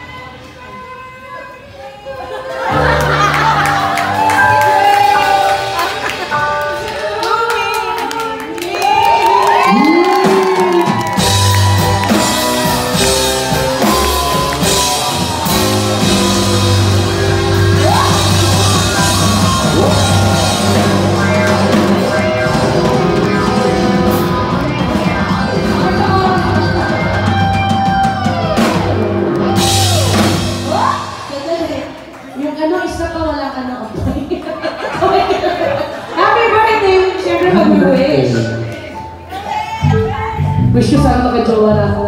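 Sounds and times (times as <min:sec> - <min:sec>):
rock backing track: 0:09.7 - 0:31.8.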